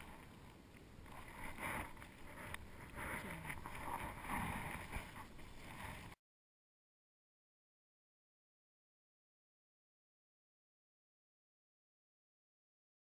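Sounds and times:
water lapping against boat: 0:00.0 - 0:06.2.

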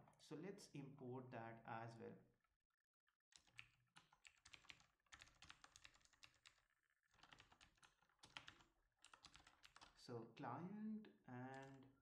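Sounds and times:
faint keyboard typing: 0:03.3 - 0:10.0, 0:11.3 - 0:12.0.

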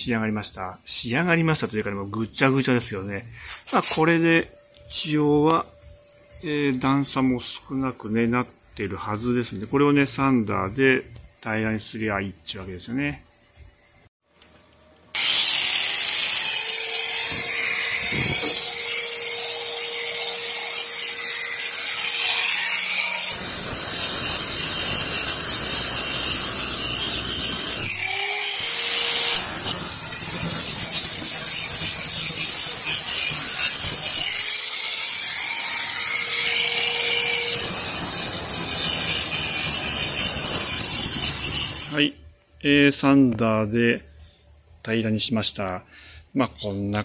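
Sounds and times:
angle grinder grinding metal: 0:15.2 - 0:42.2.

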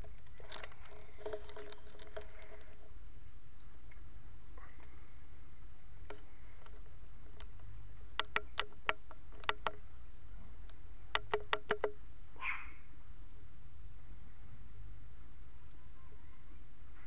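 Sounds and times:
charcoal fire crackling: 0:00.0 - 0:04.0
low background hum: 0:00.0 - 0:17.0.

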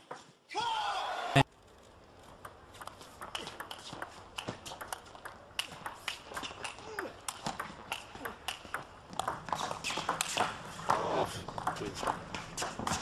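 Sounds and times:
table tennis ball clicking: 0:02.2 - 0:10.5.

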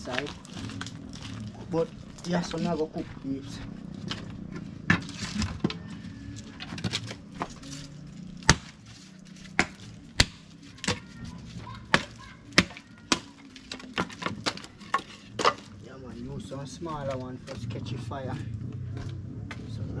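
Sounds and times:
dry sticks cracking and snapping: 0:00.0 - 0:03.1, 0:03.8 - 0:15.9.

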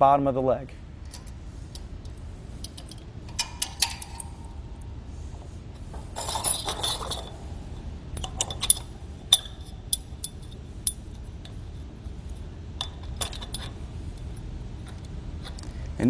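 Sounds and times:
metal leg sliding and scraping: 0:01.1 - 0:15.7
metal clinks and clicks: 0:02.6 - 0:04.4, 0:06.2 - 0:07.4, 0:08.2 - 0:15.7.

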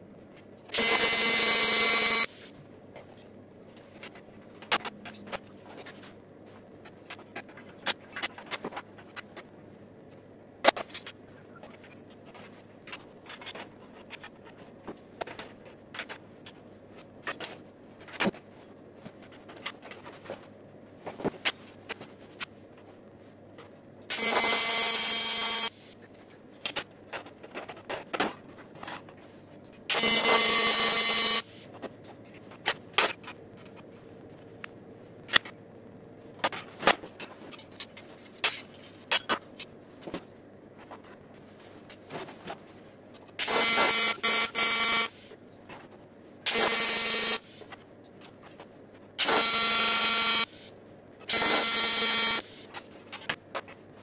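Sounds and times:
electric arc welding crackling: 0:00.8 - 0:02.5, 0:24.1 - 0:26.0, 0:29.9 - 0:31.6, 0:43.4 - 0:45.4, 0:46.5 - 0:47.6, 0:49.2 - 0:50.7, 0:51.3 - 0:52.7.

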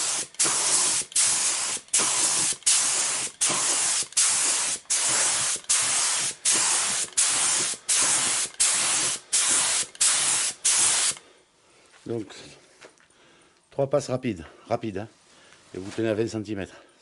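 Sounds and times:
spray gun hissing in bursts: 0:00.0 - 0:11.2.

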